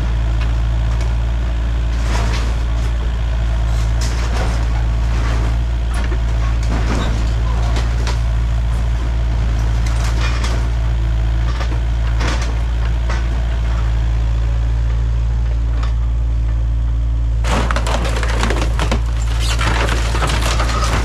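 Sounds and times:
excavator diesel engine running: 0.0s - 21.0s
crunching and cracking of metal: 2.0s - 13.8s, 17.4s - 21.0s.

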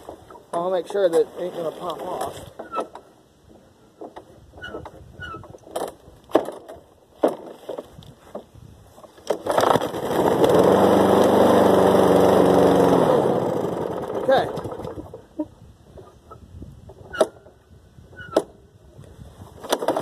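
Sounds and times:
lawn mower engine running: 9.1s - 15.4s, 19.6s - 20.0s.

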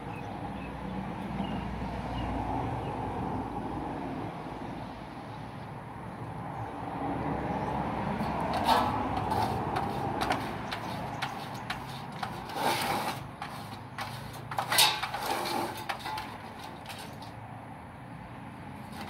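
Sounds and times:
wood clattering: 8.5s - 17.3s.

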